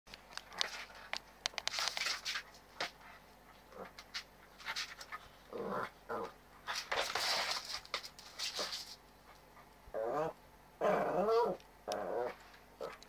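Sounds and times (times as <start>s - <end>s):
puppy paws scrabbling on floor: 0.1s - 5.4s, 6.6s - 9.8s.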